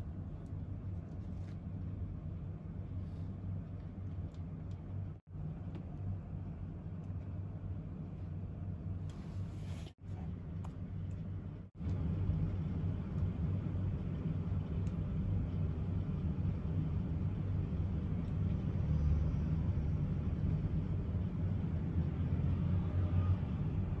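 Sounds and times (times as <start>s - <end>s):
low background rumble: 0.0s - 24.0s.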